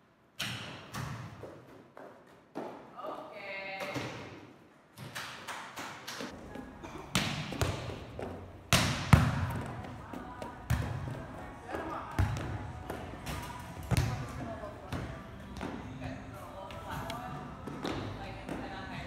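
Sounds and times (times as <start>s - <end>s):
ball bouncing on court floor: 7.1s - 11.2s, 12.1s - 15.8s.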